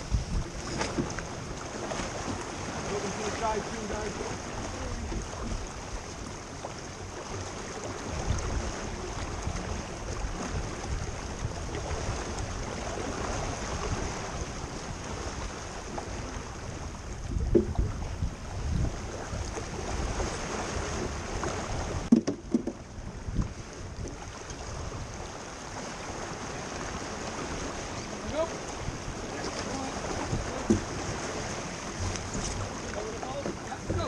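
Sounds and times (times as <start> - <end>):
wind buffeting microphone: 0.0 - 6.5, 7.3 - 34.0
water rushing past hull: 0.0 - 34.0
brief knocks: 22.1 - 22.8.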